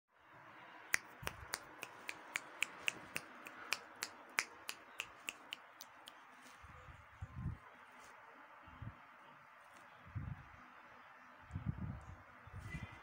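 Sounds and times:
person making sharp clicks: 0.9 - 6.2.

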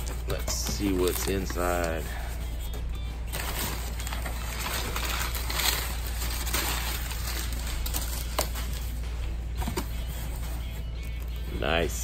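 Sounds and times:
packing paper crinkling and rustling: 0.0 - 2.4, 3.2 - 9.0.

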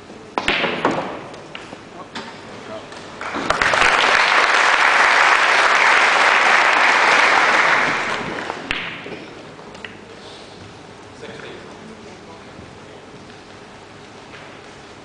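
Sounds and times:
audience applauding: 3.2 - 8.8.

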